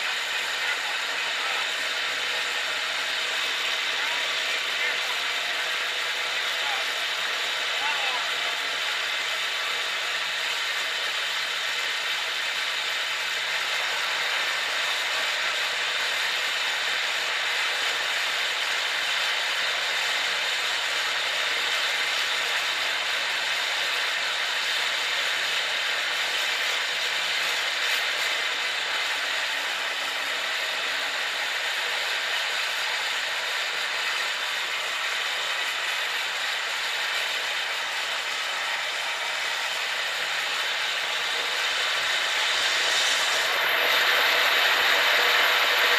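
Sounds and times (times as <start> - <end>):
aircraft engine and airflow noise: 0.0 - 45.9.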